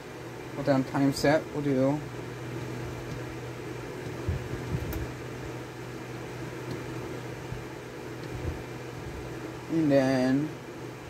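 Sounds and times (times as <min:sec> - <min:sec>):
electric fan humming: 0:00.0 - 0:11.0.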